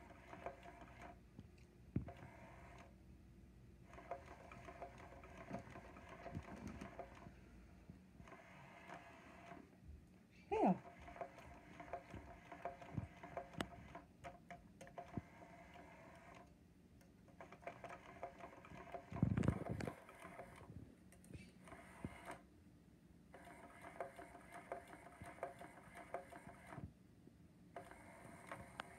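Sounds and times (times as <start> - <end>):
small motor whirring: 2.0 - 2.9, 8.2 - 9.7, 10.6 - 14.1, 14.9 - 16.5, 27.8 - 28.9.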